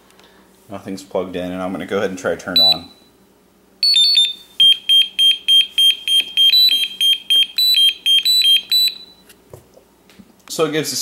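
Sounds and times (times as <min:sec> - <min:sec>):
charger buzzer beeping: 0:02.6 - 0:03.1, 0:03.8 - 0:09.2.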